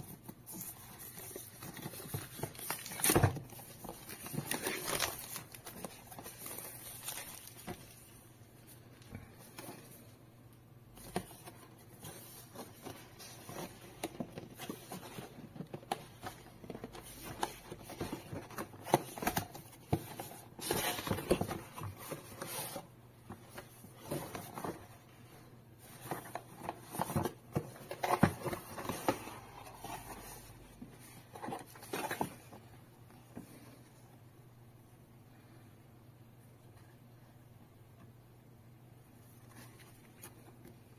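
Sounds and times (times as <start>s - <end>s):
paper inserts rustling: 0.0s - 10.1s, 25.8s - 32.6s.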